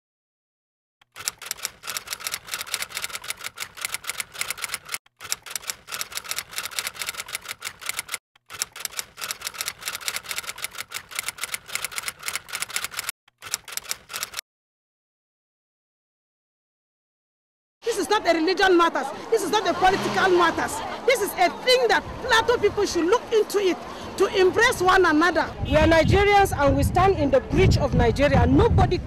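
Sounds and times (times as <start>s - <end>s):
typewriter keys clacking: 1.1s - 14.4s.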